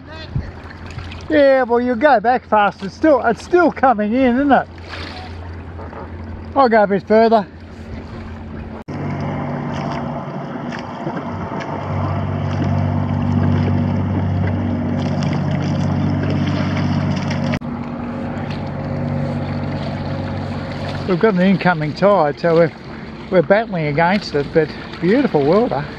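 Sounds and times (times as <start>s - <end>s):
wind on microphone: 0.0s - 1.3s
low motor hum: 0.0s - 25.9s
water slapping against hull: 0.0s - 25.9s.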